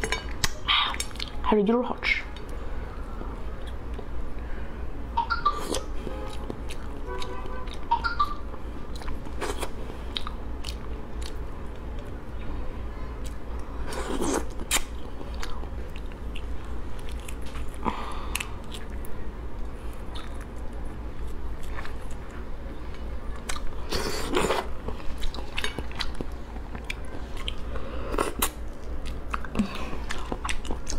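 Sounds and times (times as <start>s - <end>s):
wet chewing: 23.3s - 30.9s.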